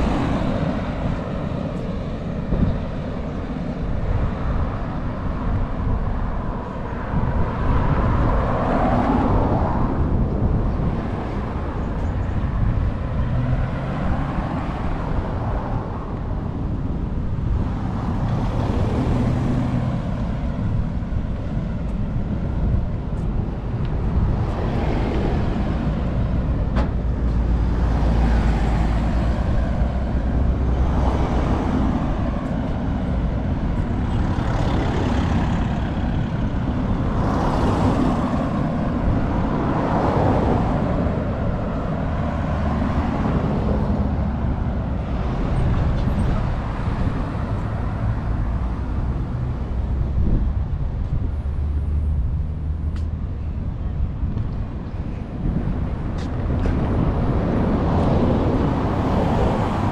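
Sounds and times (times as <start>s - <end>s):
cars passing: 0.0s - 59.9s
low traffic rumble: 0.0s - 59.9s.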